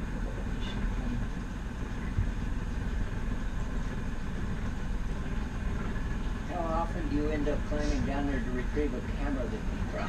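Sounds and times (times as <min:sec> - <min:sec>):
boat engine droning: 0:00.0 - 0:10.0.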